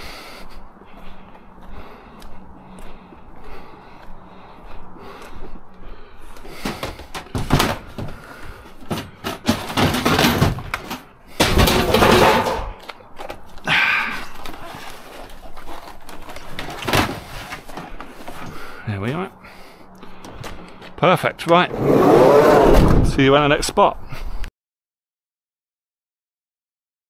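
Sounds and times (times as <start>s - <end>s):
knocks and clattering of scrap: 6.6s - 12.9s, 16.2s - 18.4s.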